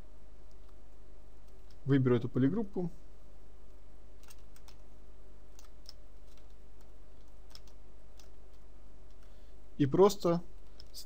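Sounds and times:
low background hum: 0:00.0 - 0:11.0
keyboard and mouse clicks: 0:04.2 - 0:04.8, 0:05.5 - 0:09.3.

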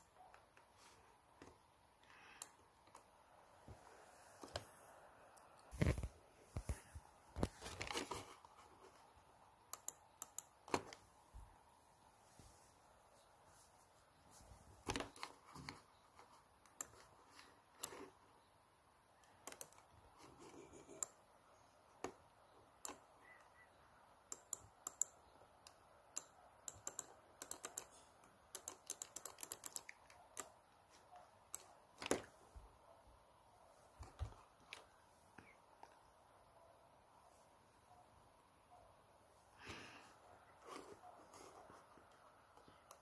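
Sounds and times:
fingertips tapping on laptop: 0:19.3 - 0:21.3, 0:24.3 - 0:32.4.

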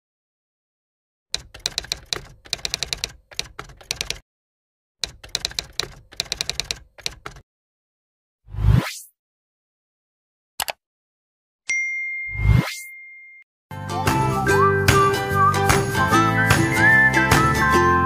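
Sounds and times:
rapid keyboard key clacks: 0:01.4 - 0:04.2, 0:05.0 - 0:07.4.

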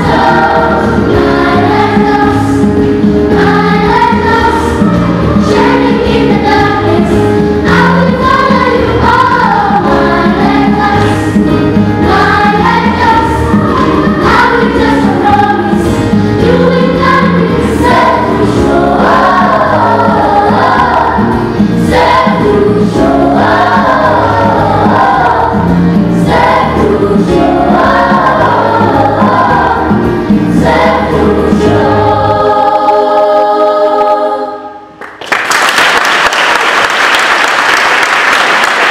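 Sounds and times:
bass and beat backing: 0:00.0 - 0:32.1
children's choir singing gospel: 0:00.0 - 0:35.1.

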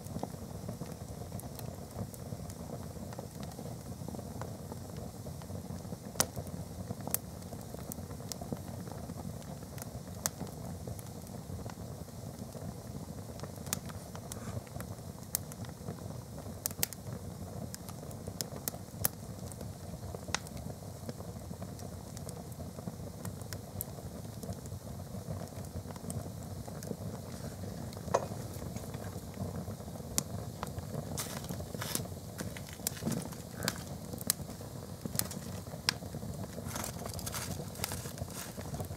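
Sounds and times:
fire crackling and popping: 0:00.0 - 0:38.9
fire rushing: 0:25.2 - 0:38.9.

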